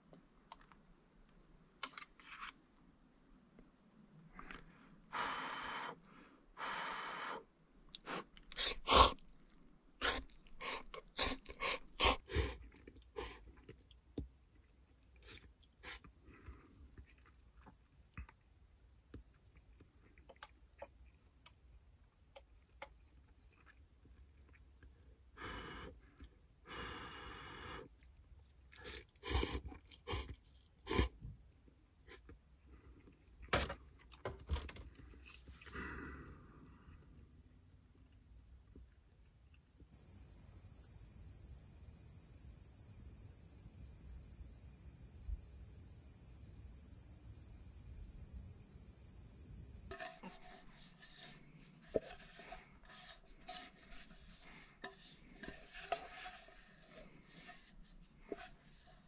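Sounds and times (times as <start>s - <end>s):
person slurping noodles: 7.9s - 9.4s, 10.0s - 13.5s, 28.8s - 31.2s
person chewing: 7.9s - 16.2s, 27.9s - 31.2s.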